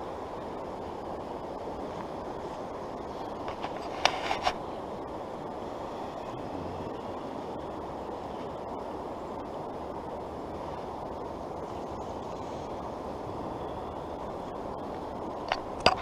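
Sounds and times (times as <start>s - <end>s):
creek flowing over riffles: 0.0s - 16.0s.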